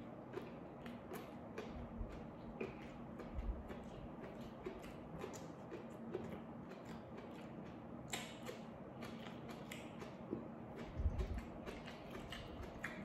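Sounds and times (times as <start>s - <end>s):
wet chewing: 0.0s - 13.0s.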